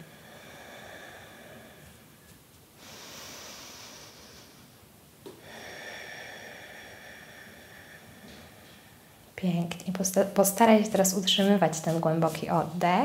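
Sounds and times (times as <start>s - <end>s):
woman breathing through nose: 0.0s - 4.8s, 5.4s - 9.4s.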